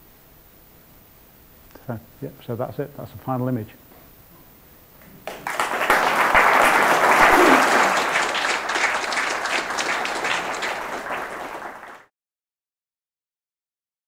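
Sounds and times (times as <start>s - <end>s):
audience applauding: 5.2s - 12.1s.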